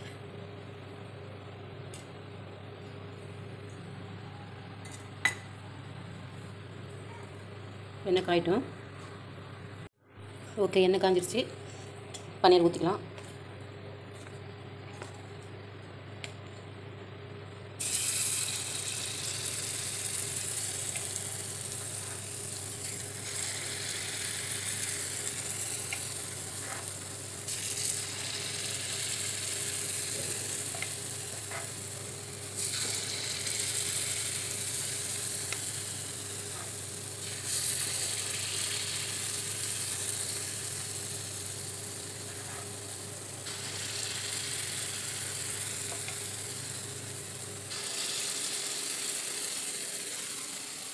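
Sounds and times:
batter sizzling in hot oil: 17.8s - 50.9s.

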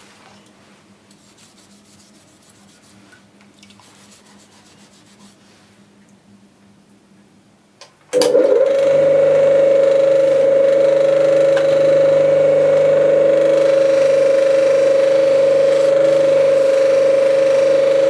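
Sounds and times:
bench grinder whine: 8.2s - 18.0s.

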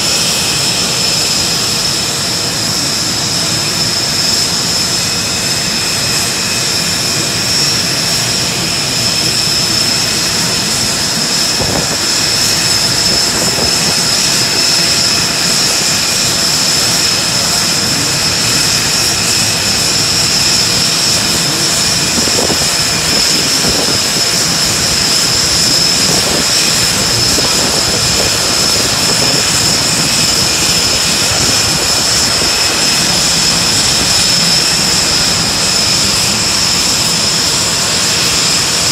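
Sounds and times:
aircraft turbine engine running: 0.0s - 38.9s.

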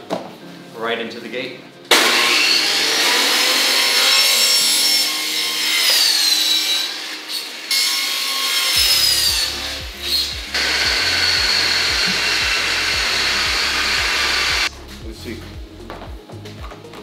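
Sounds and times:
miter saw motor whining: 1.9s - 14.7s
saw cutting plastic: 1.9s - 14.7s
background music with beat: 8.8s - 17.0s.

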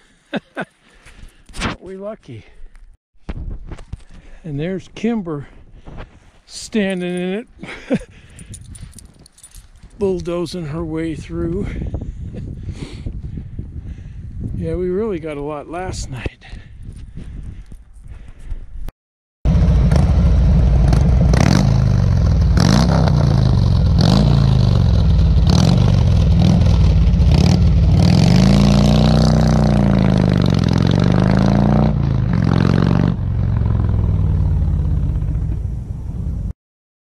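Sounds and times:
vehicle engine revving: 19.5s - 36.5s.

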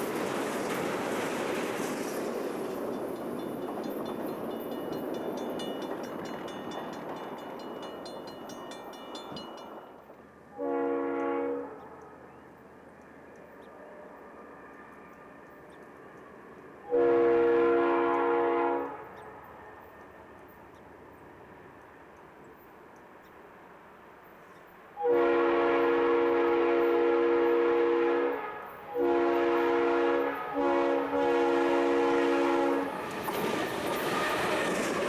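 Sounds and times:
passing train: 0.0s - 35.0s
crossing bell ringing rapidly: 2.9s - 10.0s
locomotive air horn: 10.5s - 12.1s, 16.8s - 19.1s, 25.0s - 33.0s.

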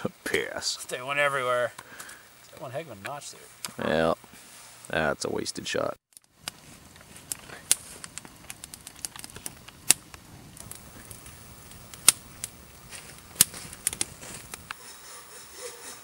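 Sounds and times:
campfire crackling and popping: 0.0s - 3.8s, 6.1s - 14.8s
faint steady hiss: 0.0s - 16.0s
fire snapping: 6.1s - 14.8s.

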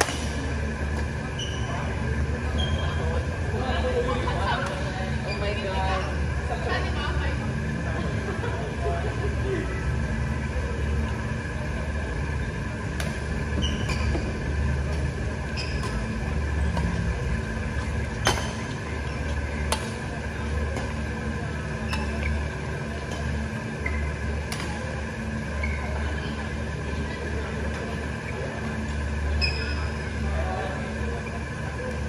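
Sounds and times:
shoes squeaking on court: 0.9s - 3.1s, 13.4s - 17.0s, 21.8s - 24.8s, 25.5s - 26.2s, 28.8s - 30.0s.

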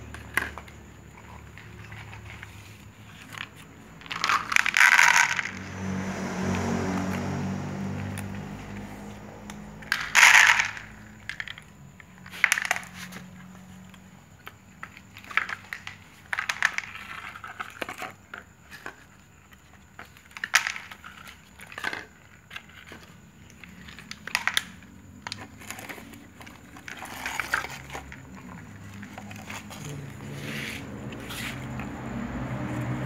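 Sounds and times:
cats crunching dry kibble: 0.0s - 5.5s, 8.3s - 30.4s
pellets clicking on tray: 4.0s - 5.6s.

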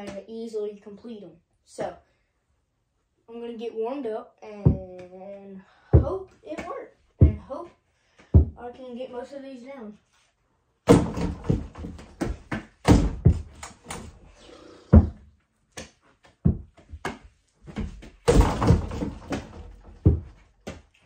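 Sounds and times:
ball and feet thumping on floor: 4.7s - 5.1s, 6.0s - 7.5s, 8.2s - 8.6s, 10.9s - 21.0s
hoop rim banging against door: 10.9s - 14.3s, 17.8s - 20.8s.

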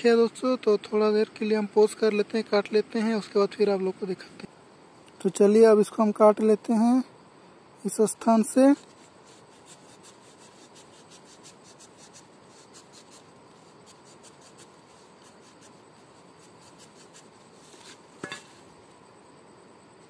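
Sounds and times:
sickle cutting plant stem: 8.8s - 18.6s.

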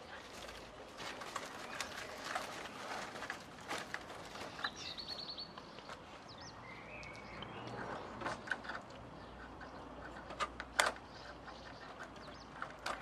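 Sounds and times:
bird chirping: 4.2s - 10.4s, 11.0s - 13.0s.

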